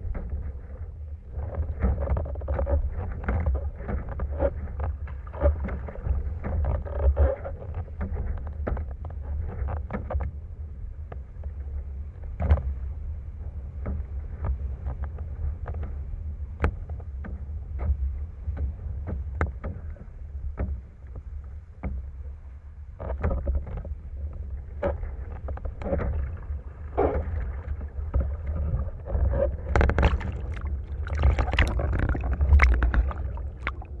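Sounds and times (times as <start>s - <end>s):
water slapping on windsurf rig: 0.0s - 34.0s
knocks from windsurf rig: 12.3s - 12.8s, 13.8s - 21.2s, 27.0s - 34.0s
sail splashing into water: 23.1s - 34.0s
wind rumble: 23.4s - 34.0s.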